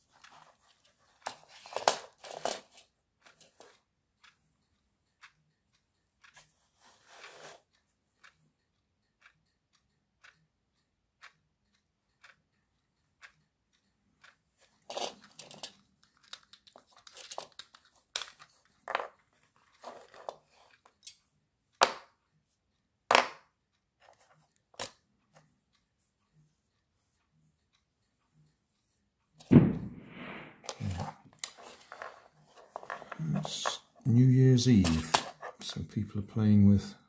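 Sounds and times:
clock ticking: 0.0 - 37.0
hands handling plastic parts: 1.2 - 2.8, 14.9 - 21.2, 30.6 - 33.8
sharp knocks: 29.5 - 30.7.

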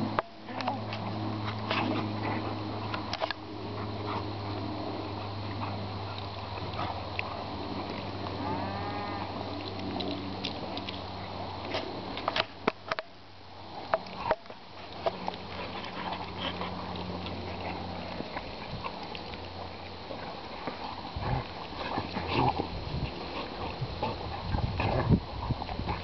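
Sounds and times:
dogs huffing and snuffling: 0.0 - 8.4, 9.3 - 26.0
steady low hum: 0.0 - 26.0
dog snorting: 15.0 - 26.0.

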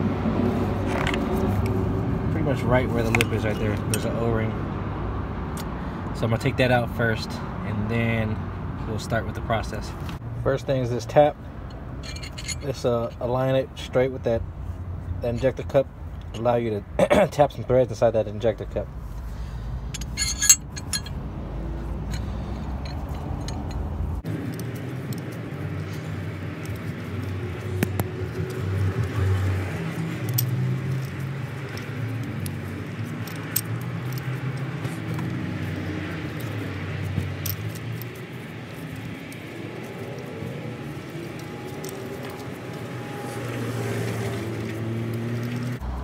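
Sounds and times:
low vehicle rumble: 19.2 - 46.0.

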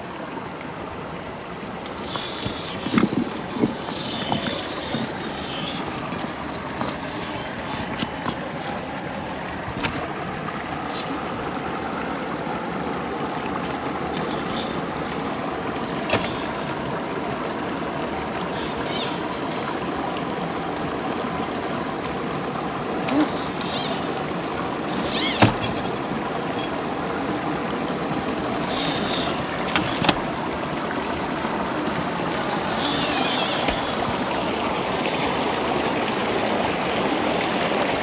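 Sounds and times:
stream water running over rocks: 0.0 - 38.0.

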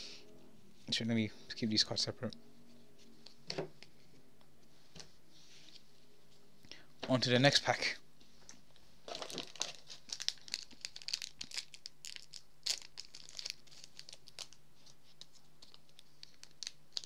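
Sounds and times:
foil wrapper crinkling and tearing: 9.1 - 17.0.

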